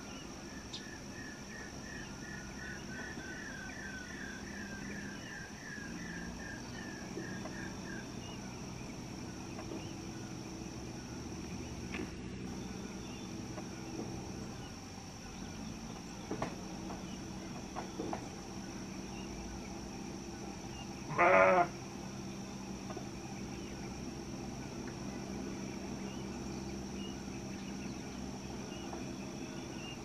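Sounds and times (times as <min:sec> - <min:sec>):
low hum: 0:00.0 - 0:30.0
loud animal call: 0:21.0 - 0:21.8.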